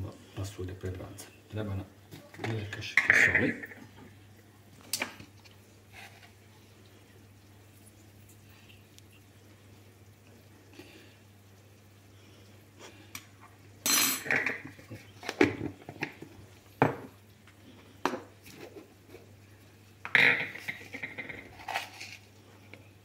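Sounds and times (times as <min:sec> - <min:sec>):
metal spoon clinking on pot and cups: 0:13.2 - 0:14.7.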